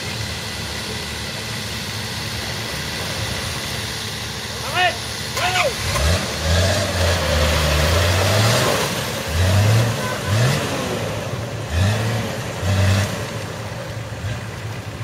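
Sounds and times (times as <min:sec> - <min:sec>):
engine revving in bursts: 0:05.0 - 0:14.6.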